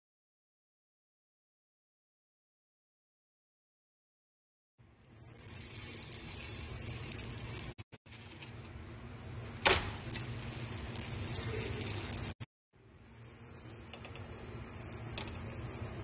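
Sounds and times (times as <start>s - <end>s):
kitchen hum and hiss: 4.8s - 16.0s.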